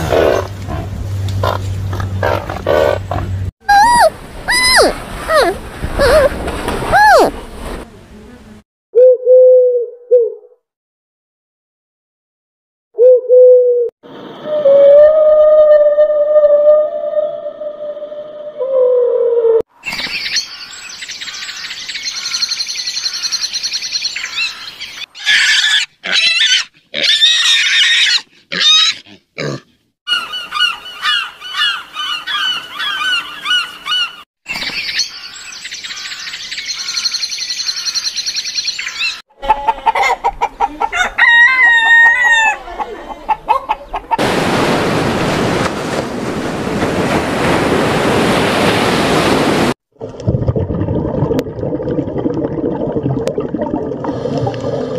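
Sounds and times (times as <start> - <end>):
gulls calling: 3.7 - 7.4
surf breaking on a beach: 44.2 - 49.8.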